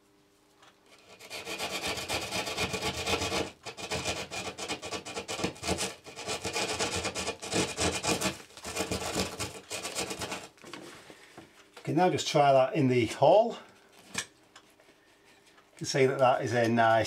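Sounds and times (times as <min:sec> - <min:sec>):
hand saw cutting plasterboard: 0:00.9 - 0:10.6.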